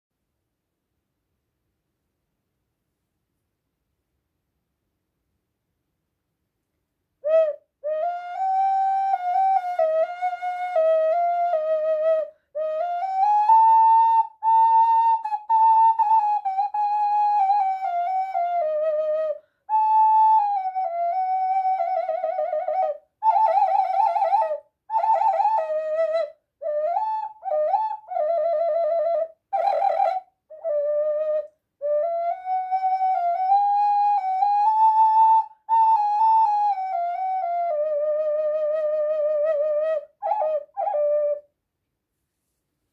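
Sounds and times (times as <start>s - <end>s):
ocarina melody with trills: 7.2s - 41.5s.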